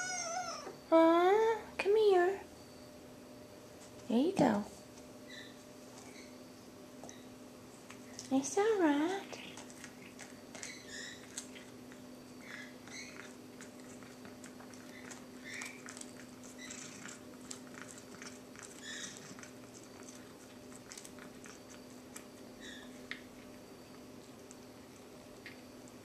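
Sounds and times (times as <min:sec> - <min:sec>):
cat chewing: 0:09.3 - 0:26.0.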